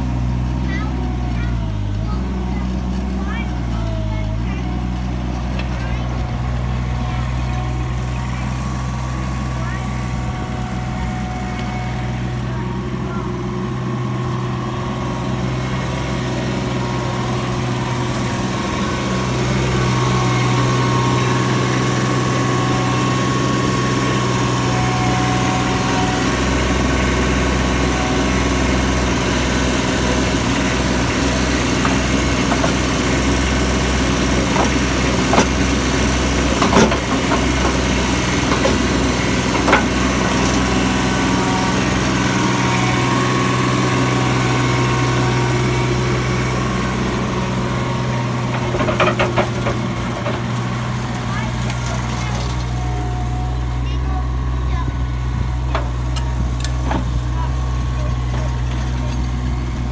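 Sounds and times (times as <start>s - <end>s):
mini skid steer engine running: 0.0s - 59.9s.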